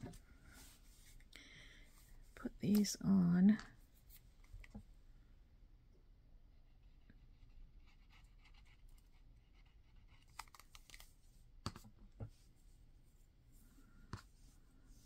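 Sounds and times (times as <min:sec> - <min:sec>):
faint paper scratching: 0:06.6 - 0:11.1.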